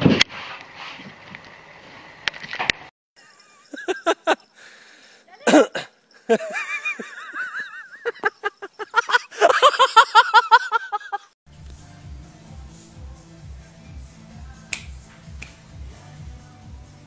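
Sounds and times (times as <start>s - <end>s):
person laughing: 3.2s - 4.5s, 5.5s - 11.4s.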